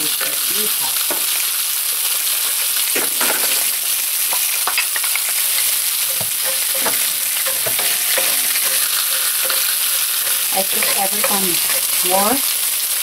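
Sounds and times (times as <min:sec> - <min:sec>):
food frying sizzle: 0:00.0 - 0:13.0
wooden spatula scraping skillet: 0:02.1 - 0:12.3.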